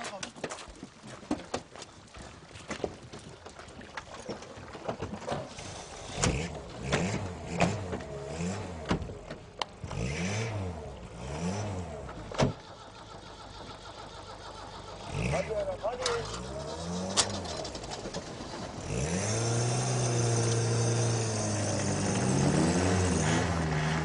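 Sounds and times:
car engine revving: 5.6s - 24.0s.

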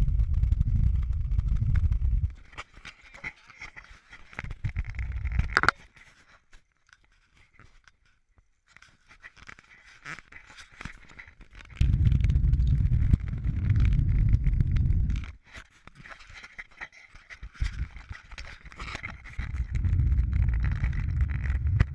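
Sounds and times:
low rumble: 0.0s - 2.4s, 11.8s - 15.2s, 19.4s - 21.9s
camera handling scraping: 2.4s - 8.1s, 15.0s - 21.9s.

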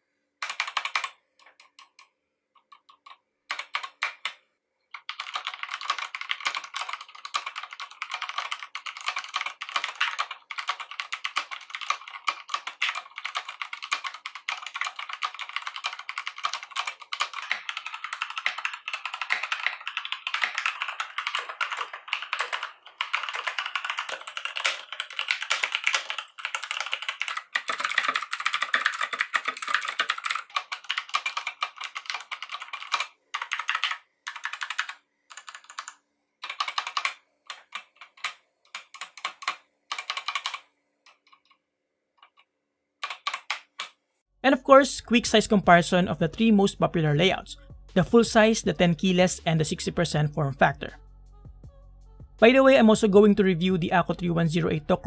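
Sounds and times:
fast typing on mechanical keyboard: 0.4s - 41.6s, 43.0s - 44.0s.

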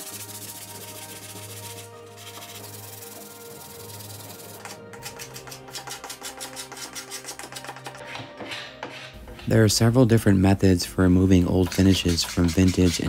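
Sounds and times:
sandpaper rubbing wood: 0.0s - 7.8s, 11.5s - 13.0s
hand scraper strokes on wood: 0.0s - 9.2s.

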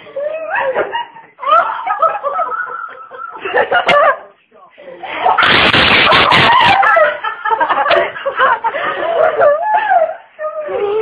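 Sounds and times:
people laughing: 0.0s - 4.3s, 5.2s - 11.0s
excited voices: 5.0s - 7.4s.

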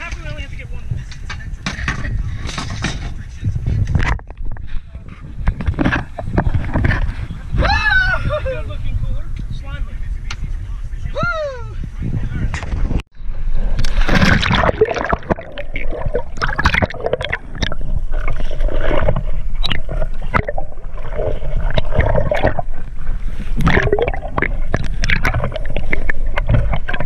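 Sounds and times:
water gurgling and bubbling: 5.3s - 7.6s, 13.2s - 27.0s.

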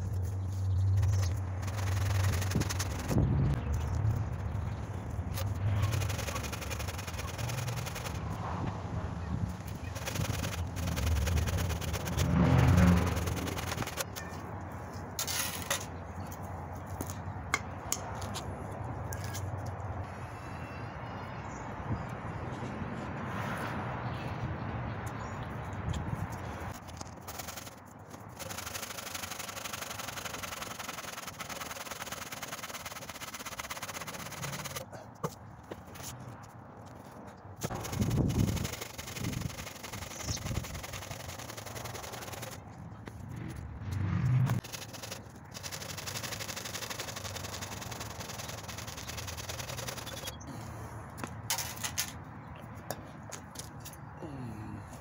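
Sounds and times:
hand saw cutting branch: 27.2s - 34.9s.

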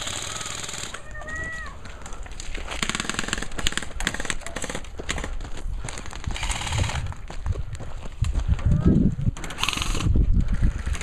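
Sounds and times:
airsoft rifles firing bursts: 0.0s - 1.0s, 2.7s - 7.1s, 9.4s - 10.1s.

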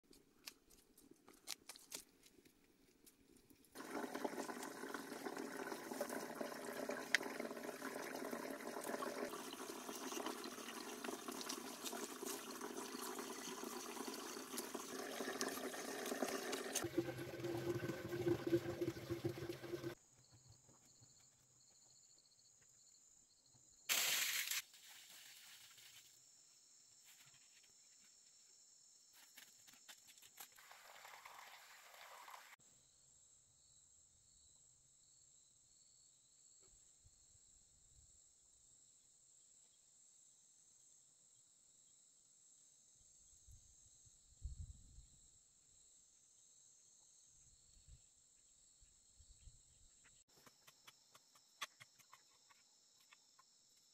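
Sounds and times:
running splashing water: 3.8s - 20.0s, 30.5s - 32.6s.

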